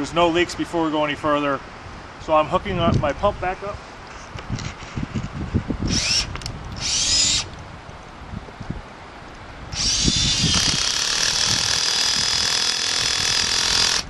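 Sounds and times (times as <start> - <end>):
cordless drill running: 5.9 - 7.5, 9.7 - 14.0.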